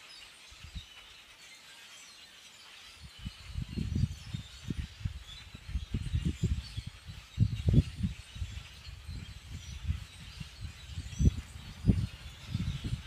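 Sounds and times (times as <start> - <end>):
flock of birds chattering: 0.0 - 13.0
wind buffeting microphone: 3.0 - 13.0.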